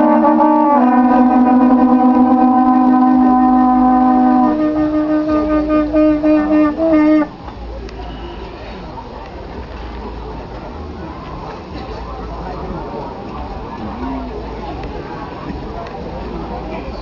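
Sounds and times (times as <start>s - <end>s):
horn-like wind instruments: 0.0s - 9.1s.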